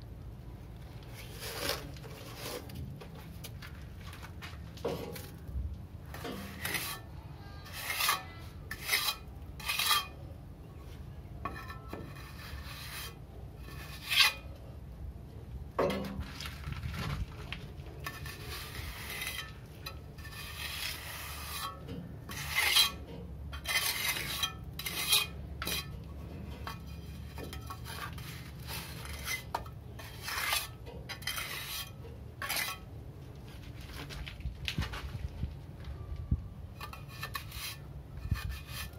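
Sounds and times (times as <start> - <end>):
low steady hum: 0.0 - 38.9
trowel scraping wet mortar: 1.0 - 3.5, 6.1 - 10.2, 11.5 - 14.5, 18.0 - 32.9, 36.8 - 38.9.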